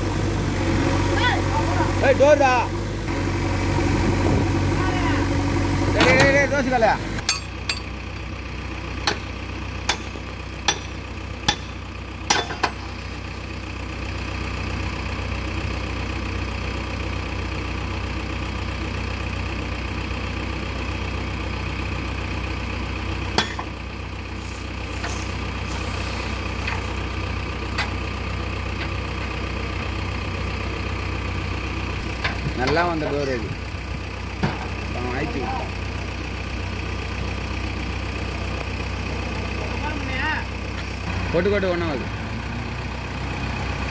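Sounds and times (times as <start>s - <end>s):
diesel engine idling: 0.0s - 43.9s
sharp metal clanks: 7.2s - 8.0s, 9.9s - 12.9s, 23.4s - 23.7s.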